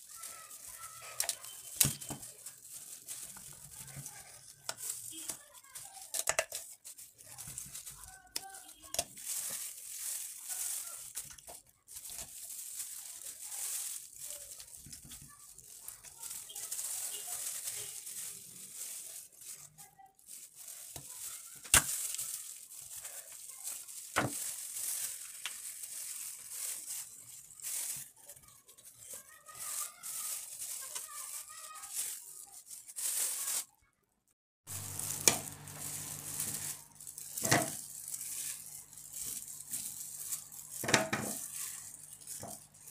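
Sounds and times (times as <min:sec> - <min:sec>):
plastic gloves crinkling: 0:00.0 - 0:33.9, 0:34.7 - 0:42.9
vegetable pieces clacking into bowl: 0:00.2 - 0:19.0, 0:34.7 - 0:42.9.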